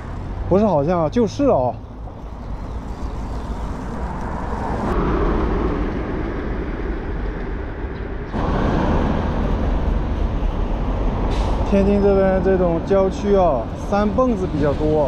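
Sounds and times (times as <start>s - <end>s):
road traffic: 0.0s - 15.0s
wind noise on microphone: 2.4s - 11.7s.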